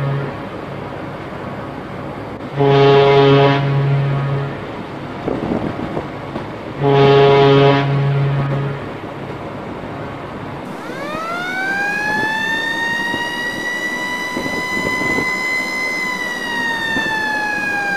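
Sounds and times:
siren wailing: 10.7s - 17.9s.

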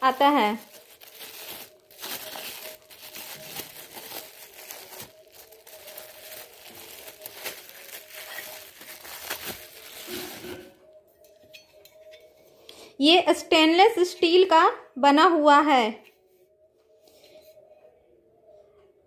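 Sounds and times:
bubble wrap crinkling: 0.0s - 10.8s.

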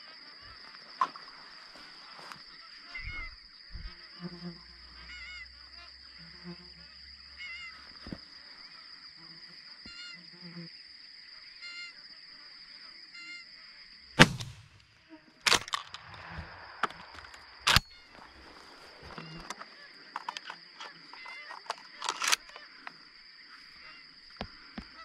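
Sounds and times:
shotgun blasts: 14.2s - 14.9s, 15.5s - 18.0s.

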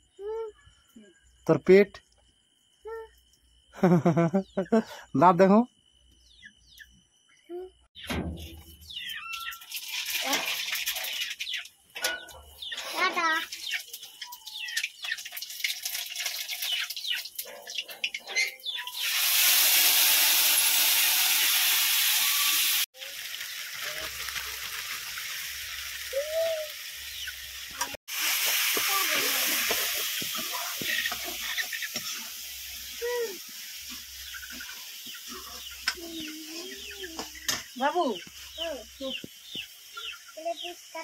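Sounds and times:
spices frying in hot oil: 9.0s - 11.9s, 12.5s - 41.0s.

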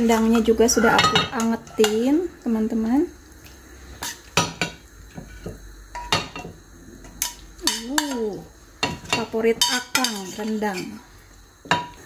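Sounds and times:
metal spoon scraping a saucepan: 0.6s - 2.0s, 7.1s - 11.0s.

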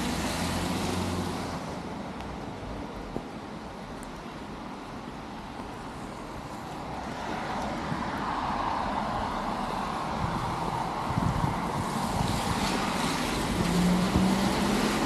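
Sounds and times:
car tyres hissing on wet road: 0.0s - 1.8s, 6.0s - 15.0s.

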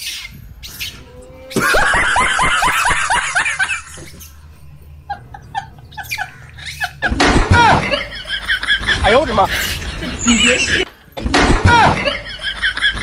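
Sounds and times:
person laughing: 1.6s - 4.2s, 5.0s - 10.9s, 11.9s - 13.0s.

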